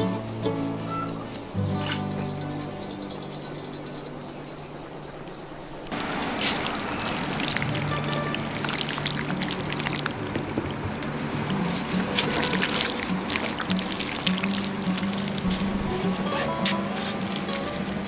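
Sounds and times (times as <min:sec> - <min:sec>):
liquid pouring: 0:05.9 - 0:16.3, 0:17.2 - 0:18.0.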